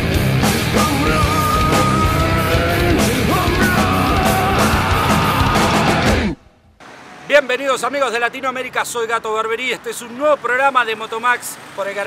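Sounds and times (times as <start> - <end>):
heavy rock music: 0.0 - 6.4
steady drum beat: 0.0 - 6.4.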